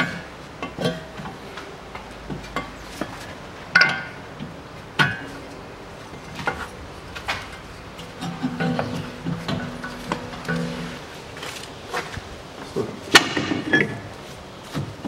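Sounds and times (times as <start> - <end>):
metallic clinks and knocks: 7.4 - 11.1.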